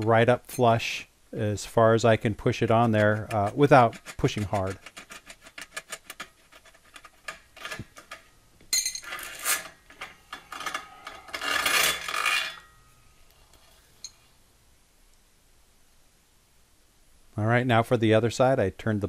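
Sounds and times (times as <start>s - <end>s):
metal-on-metal rubbing: 2.4s - 14.2s.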